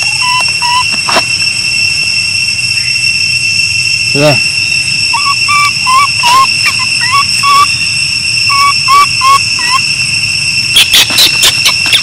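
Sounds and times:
baby monkey whimpering coos: 0:00.2 - 0:00.9, 0:05.2 - 0:07.7.

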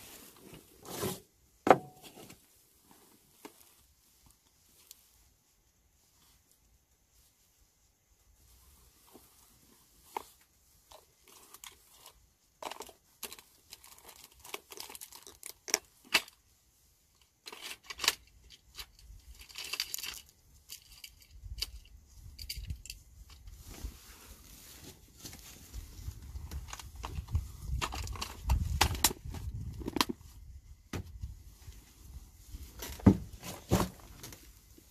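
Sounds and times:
rustling: 0:00.0 - 0:34.9
fishing gear clicks and knocks: 0:17.2 - 0:23.5, 0:26.5 - 0:30.2.

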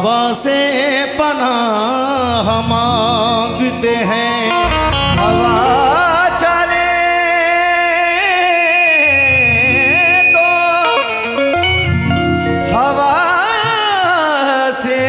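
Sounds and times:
man singing ornamented melody: 0:00.0 - 0:12.0
keyboard accompaniment: 0:02.3 - 0:14.9.

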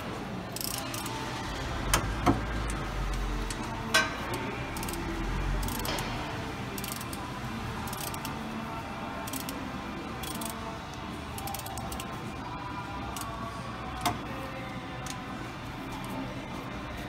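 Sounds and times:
faint radio music: 0:00.0 - 0:17.0
hand ratchet clicking: 0:00.6 - 0:01.1, 0:04.8 - 0:05.0, 0:05.6 - 0:06.0, 0:06.8 - 0:07.2, 0:07.8 - 0:08.3, 0:09.3 - 0:09.6, 0:10.2 - 0:10.6, 0:11.4 - 0:12.1.

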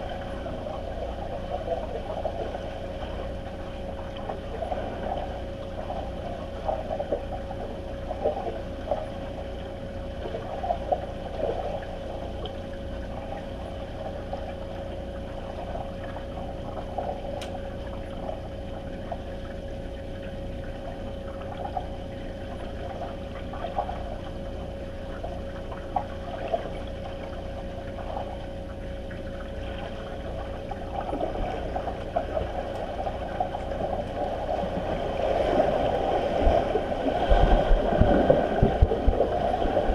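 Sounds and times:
underwater splashes and crackles: 0:00.0 - 0:39.9
underwater steady hum: 0:00.0 - 0:39.9
low rumble: 0:30.6 - 0:39.9.

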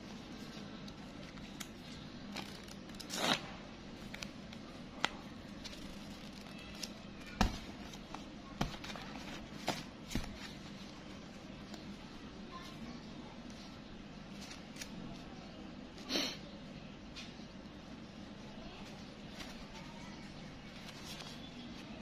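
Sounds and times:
banknotes rustling and crinkling: 0:04.0 - 0:12.7, 0:18.9 - 0:22.0.

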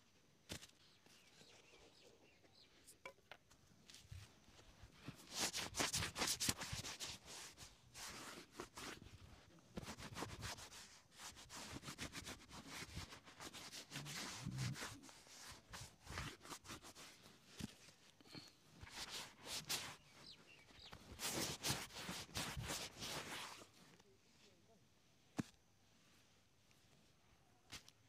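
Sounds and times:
cloth rubbing leather shoe: 0:05.0 - 0:18.0, 0:18.8 - 0:23.8.

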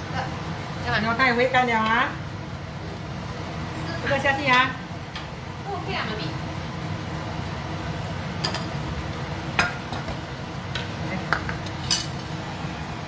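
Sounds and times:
metal utensils clinking on frying pan: 0:11.3 - 0:12.2.

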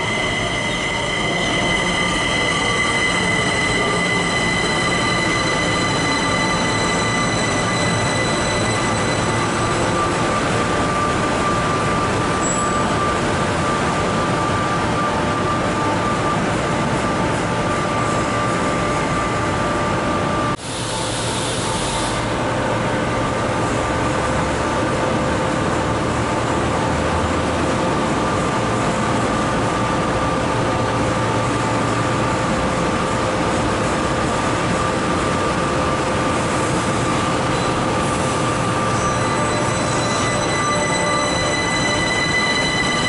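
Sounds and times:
high steady equipment tones: 0:00.0 - 0:15.7, 0:37.4 - 0:43.0
metro train running hum: 0:00.0 - 0:43.0
train pulling away: 0:00.0 - 0:43.0.

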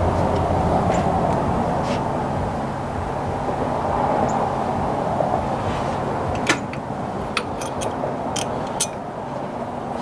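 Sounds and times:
wrench clicking: 0:07.4 - 0:09.0.

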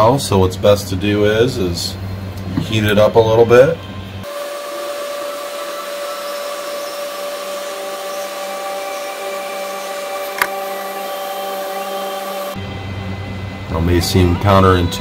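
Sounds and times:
faint steady whine: 0:00.0 - 0:15.0
hot air station blowing: 0:04.2 - 0:14.4.

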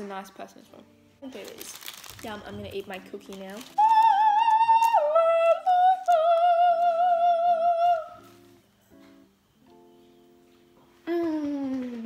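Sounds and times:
high wordless singing with vibrato: 0:03.7 - 0:08.3.

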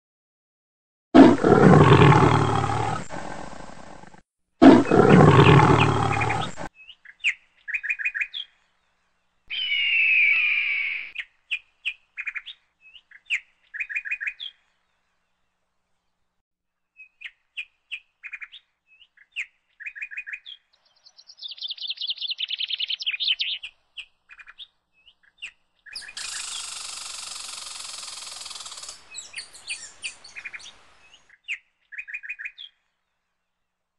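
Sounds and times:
animal roars: 0:01.2 - 0:06.7
bird chirps and trills: 0:04.9 - 0:08.6, 0:09.5 - 0:14.6, 0:17.0 - 0:32.8.

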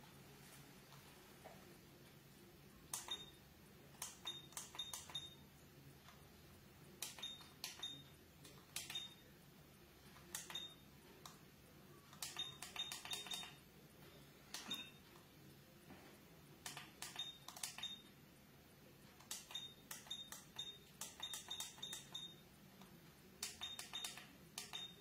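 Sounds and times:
high electronic beep: 0:12.3 - 0:13.6, 0:14.6 - 0:15.0, 0:19.5 - 0:22.4, 0:23.6 - 0:25.0.

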